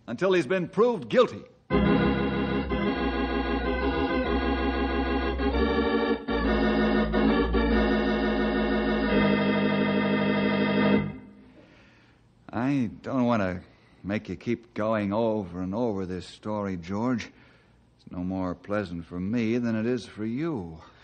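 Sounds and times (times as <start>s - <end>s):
wavering organ chords: 1.7s - 11.5s.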